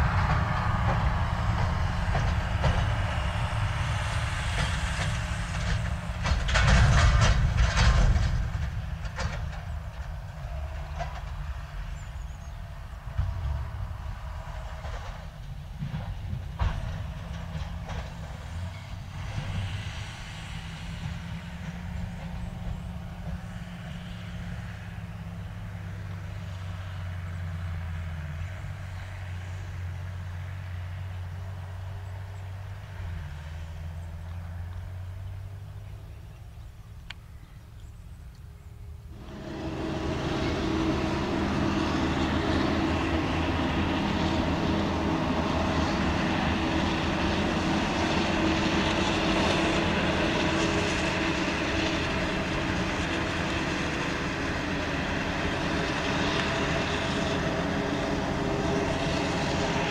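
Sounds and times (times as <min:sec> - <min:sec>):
machinery clattering and rattling: 0:00.0 - 0:24.7, 0:39.2 - 0:59.9
farm machinery engines droning: 0:00.0 - 0:59.9
tractor engine hum: 0:00.0 - 0:59.9.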